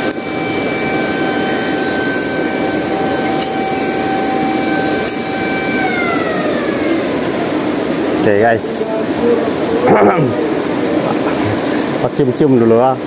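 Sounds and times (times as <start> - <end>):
motor whining: 0.0 - 12.0.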